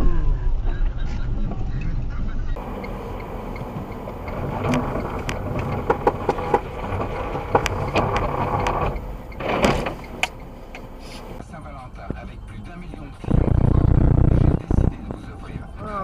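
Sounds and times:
car road and engine noise: 0:00.0 - 0:16.0
sharp clicks and knocks: 0:02.6 - 0:11.4.

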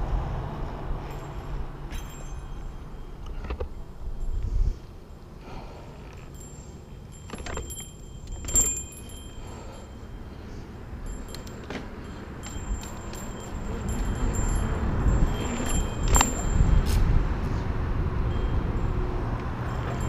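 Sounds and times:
wind rumble on microphone: 0:00.0 - 0:05.0, 0:12.2 - 0:20.0
bike clicks and rattles: 0:07.1 - 0:09.7, 0:11.1 - 0:17.1.

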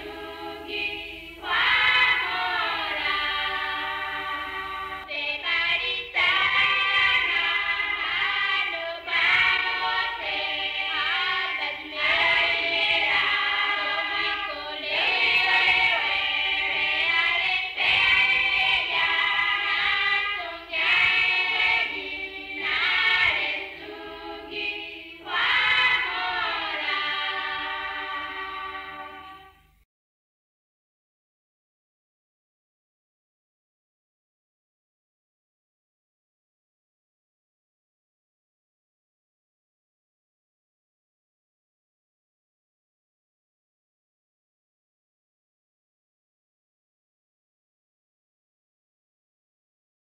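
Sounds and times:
choir singing: 0:00.0 - 0:29.7.

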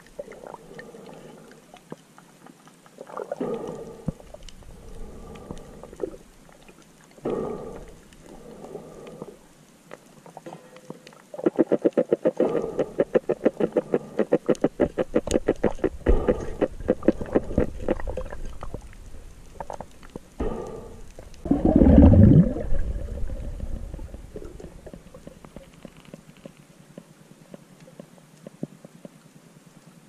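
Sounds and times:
fish grunting underwater: 0:03.0 - 0:09.5, 0:10.3 - 0:26.6.

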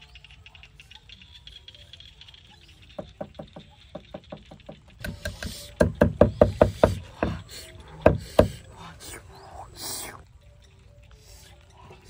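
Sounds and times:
cleaver chopping on wooden board: 0:04.3 - 0:07.4.

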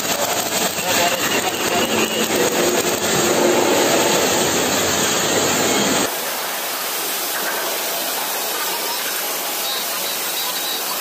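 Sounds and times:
arc welding hiss: 0:06.0 - 0:11.0.

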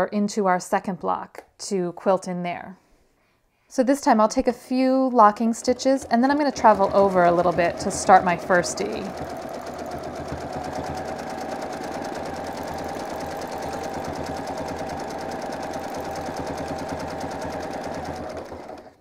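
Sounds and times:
sewing machine running: 0:05.2 - 0:19.0.

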